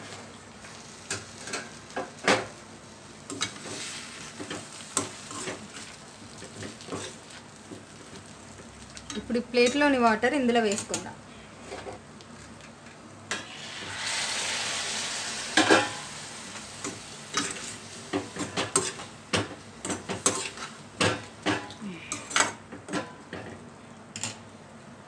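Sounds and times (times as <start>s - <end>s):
water sizzling in hot pan: 0.0s - 11.1s, 13.3s - 22.2s.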